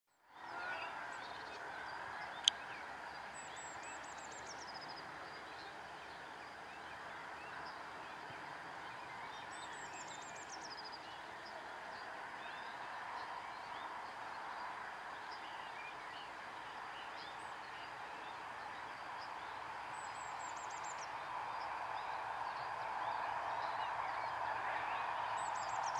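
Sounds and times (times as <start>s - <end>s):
songbird trilled song: 0.4s - 8.2s
birds chirping: 0.4s - 25.9s.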